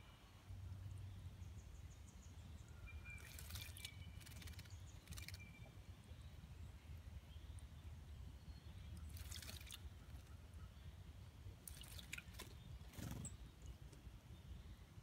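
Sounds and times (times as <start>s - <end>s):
bird splashing in water: 3.1s - 5.4s, 9.0s - 10.3s, 11.6s - 12.6s.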